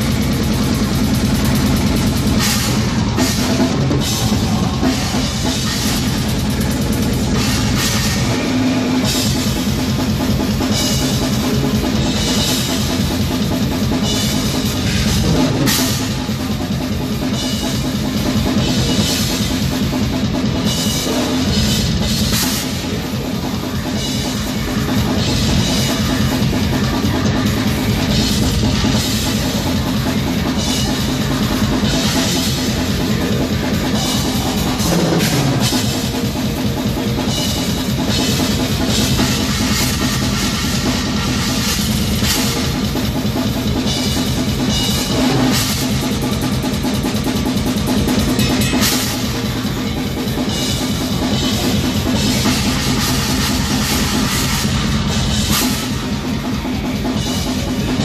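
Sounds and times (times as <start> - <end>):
distorted guitars: 0.0 - 58.0
metal band playing live: 0.0 - 58.0
rapid drumming and cymbals: 0.0 - 58.0.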